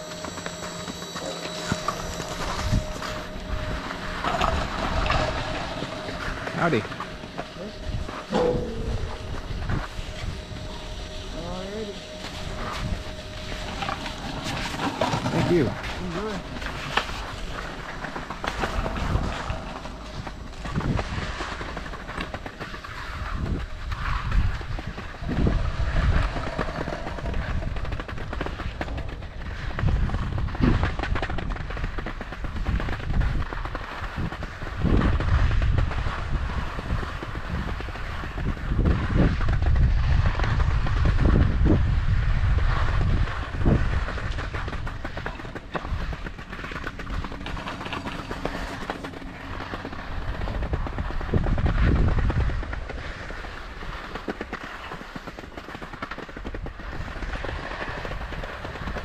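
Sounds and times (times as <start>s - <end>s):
skis scraping on slushy snow: 11.3s - 25.1s, 42.4s - 59.0s.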